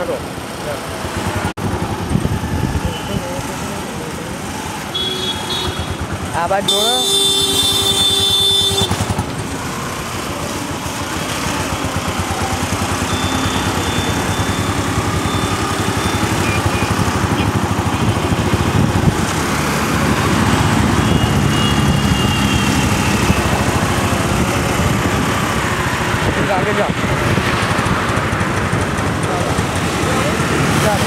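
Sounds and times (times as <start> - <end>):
road and wind noise: 0.0 - 31.0
scooter engines running: 0.0 - 31.0
vehicle horn: 4.9 - 6.1, 6.7 - 9.2, 21.0 - 23.6.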